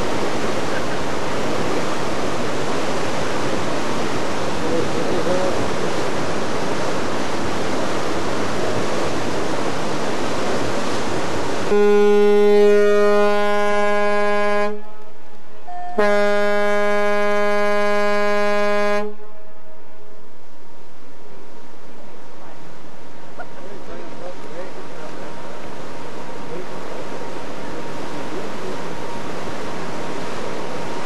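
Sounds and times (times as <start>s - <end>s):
rush of wind and sea: 0.0s - 19.2s
ship's horn blasts: 11.6s - 20.2s.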